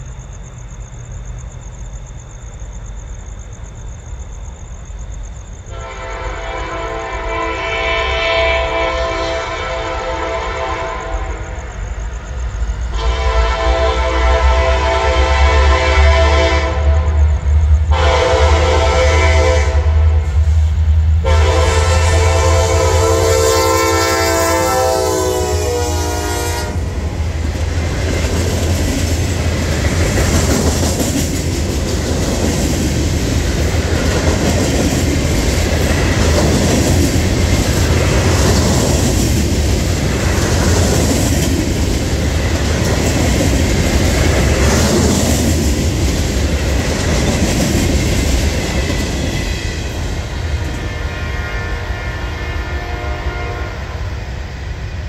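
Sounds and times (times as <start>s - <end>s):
train wheels rumbling on rails: 0.0s - 55.0s
distant train horn: 5.7s - 11.6s, 12.9s - 27.0s, 50.6s - 54.3s.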